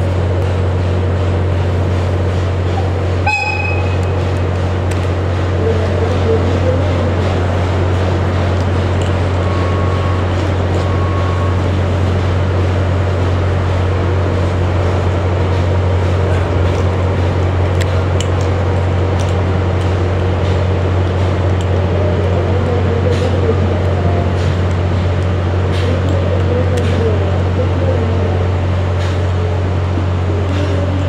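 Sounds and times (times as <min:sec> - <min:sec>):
steam locomotive hum and hiss: 0:00.0 - 0:31.0
short beeps: 0:03.3 - 0:04.1, 0:09.4 - 0:11.6.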